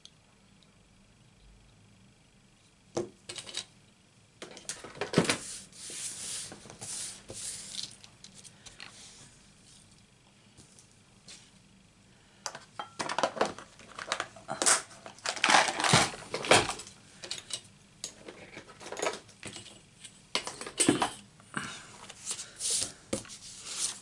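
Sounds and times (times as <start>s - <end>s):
paper rustling and scraping: 4.8s - 8.0s, 22.2s - 24.0s.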